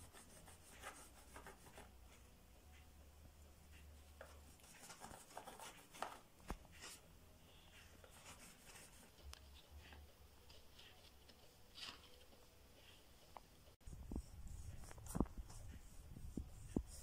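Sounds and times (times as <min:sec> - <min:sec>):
crayon scratching on cardboard: 0:00.0 - 0:01.9, 0:08.1 - 0:09.2.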